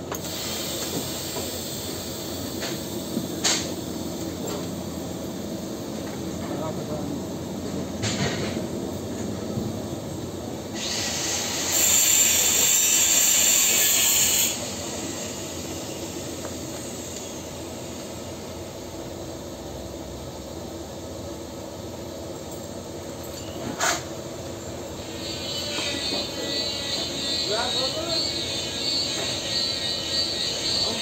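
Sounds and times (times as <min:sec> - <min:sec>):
welding arc hissing: 0:00.1 - 0:06.1, 0:10.6 - 0:18.9, 0:23.8 - 0:31.0.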